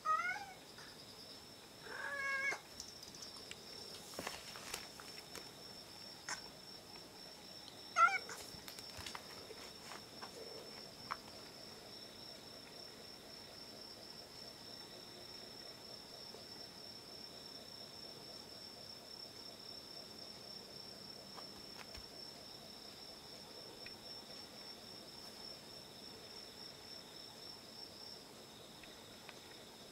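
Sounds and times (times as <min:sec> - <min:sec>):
cat meowing: 0:00.0 - 0:00.6, 0:01.8 - 0:02.6, 0:08.0 - 0:08.4
crickets chirring: 0:00.0 - 0:29.9.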